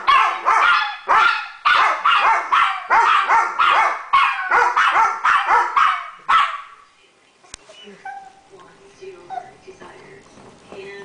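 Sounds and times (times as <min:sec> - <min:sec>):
dogs barking: 0:00.0 - 0:06.8.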